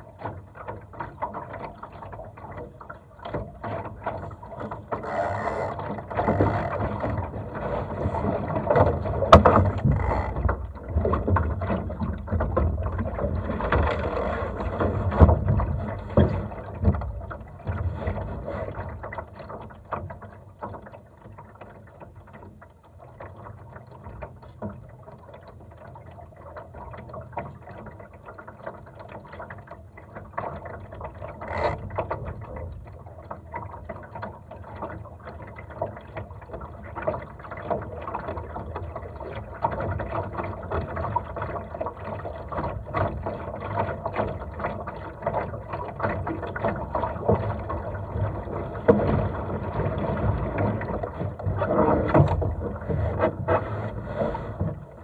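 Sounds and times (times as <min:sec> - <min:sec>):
water lapping along hull: 0:00.0 - 0:55.0
rigging clicks and knocks: 0:02.4 - 0:18.3, 0:30.4 - 0:34.8.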